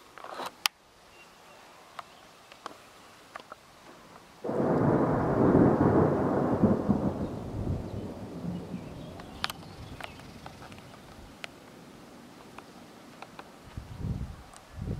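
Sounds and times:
thunder clap and rumble: 4.5 - 10.3.

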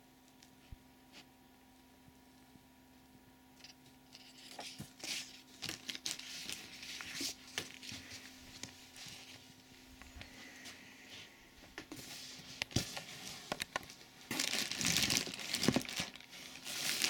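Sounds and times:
paper rustling and crackling: 3.6 - 9.7, 11.8 - 17.0.

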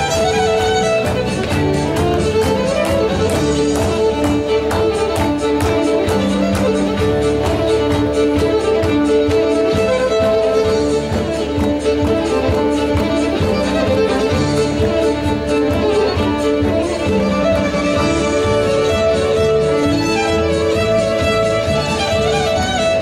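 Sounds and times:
drum beat: 0.0 - 17.5
fiddle playing lively tune: 0.0 - 23.0.

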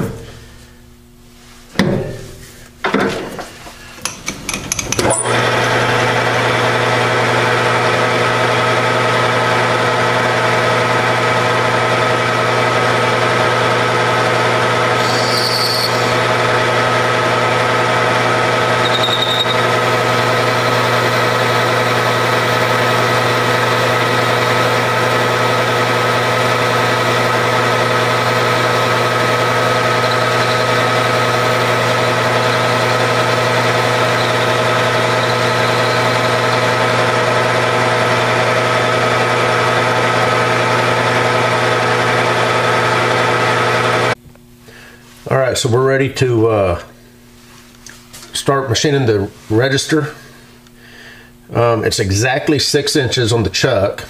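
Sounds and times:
lathe running with gear whine: 4.0 - 44.2
cutting tool squealing: 14.9 - 16.3, 18.8 - 23.9, 26.8 - 37.1.

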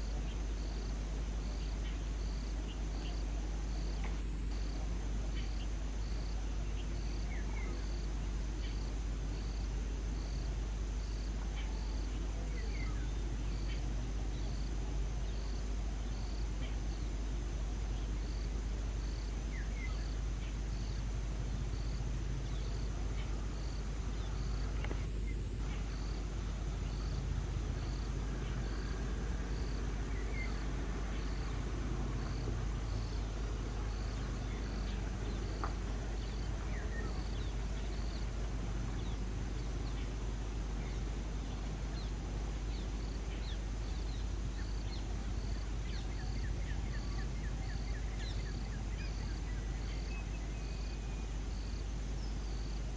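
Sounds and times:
cricket chirping: 0.0 - 52.9
low outdoor rumble: 0.0 - 52.9.

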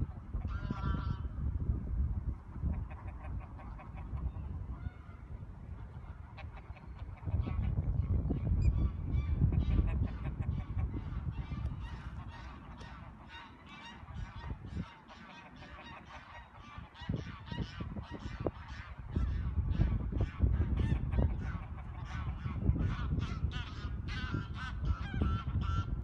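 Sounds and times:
geese honking: 0.4 - 1.3, 9.1 - 26.0.

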